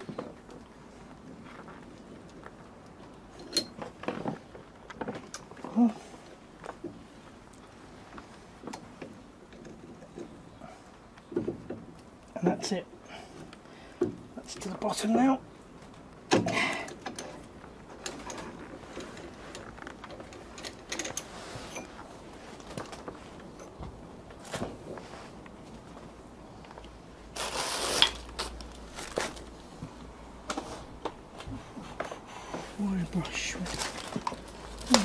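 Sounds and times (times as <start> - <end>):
scraping rustle: 17.2 - 26.1, 27.3 - 35.0.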